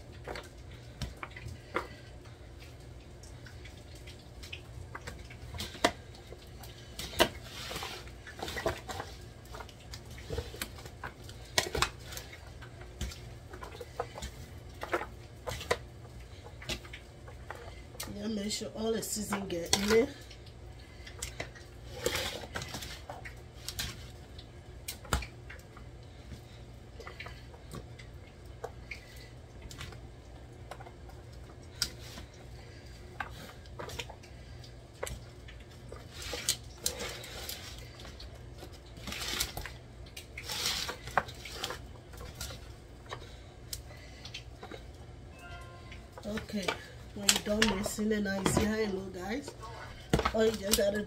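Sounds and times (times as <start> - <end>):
noodles squishing: 0.0 - 51.0
steady low hum: 0.0 - 51.0
aluminium foil pan crinkling: 35.9 - 43.4, 46.1 - 51.0.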